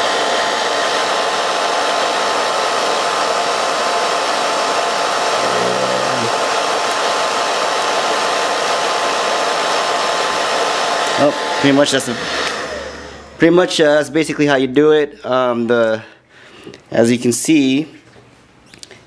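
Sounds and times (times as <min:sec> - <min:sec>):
hair dryer running: 0:00.0 - 0:14.0.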